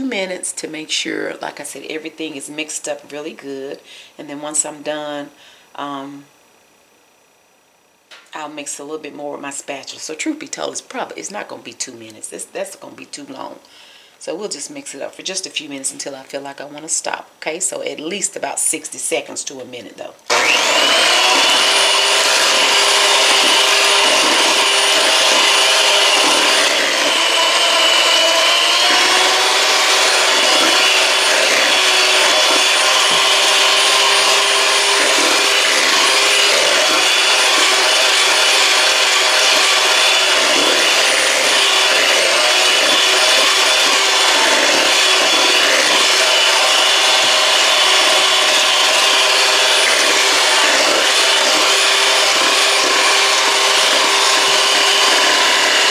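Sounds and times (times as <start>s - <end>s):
electric hand mixer whipping batter: 20.3s - 55.9s.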